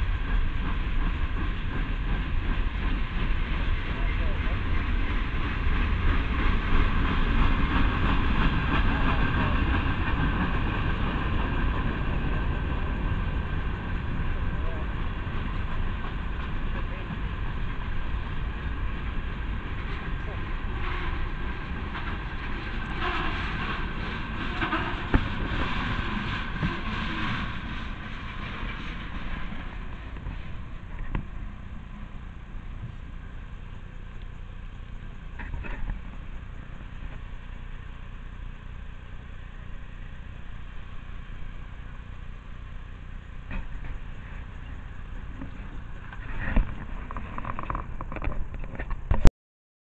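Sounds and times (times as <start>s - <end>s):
freight train wheels clattering: 0.0s - 37.8s.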